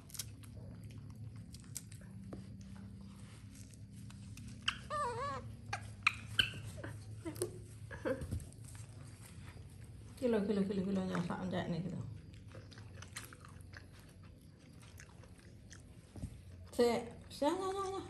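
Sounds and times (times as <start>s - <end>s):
monkey high squeaks: 4.6s - 7.0s
monkey warbling whine: 4.6s - 7.0s.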